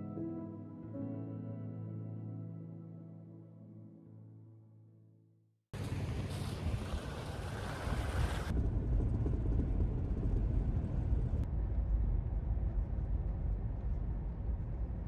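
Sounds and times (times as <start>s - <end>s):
vehicle engine and tyres rumble: 5.8s - 15.0s.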